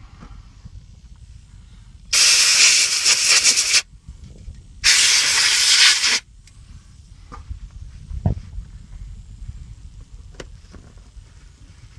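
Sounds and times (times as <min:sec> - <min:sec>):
aerosol can spraying hiss: 0:02.1 - 0:03.9, 0:04.8 - 0:06.2.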